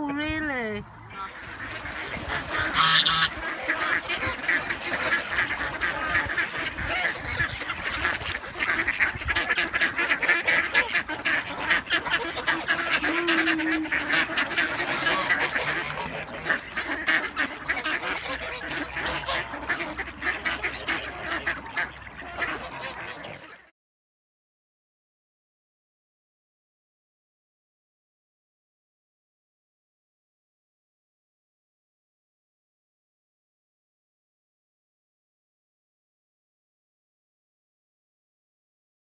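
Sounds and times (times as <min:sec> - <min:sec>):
ducks quacking: 0:00.0 - 0:23.7.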